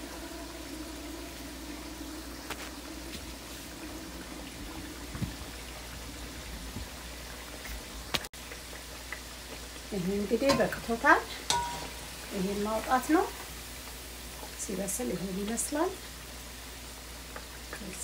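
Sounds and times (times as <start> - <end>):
food deep-frying in oil: 0.0 - 18.0.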